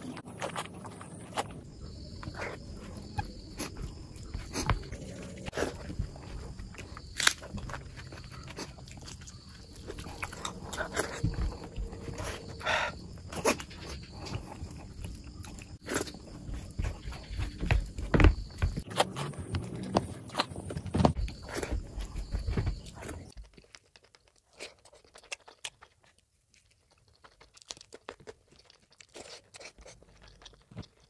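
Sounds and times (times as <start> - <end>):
wet chewing and lip smacks: 23.1 - 31.0.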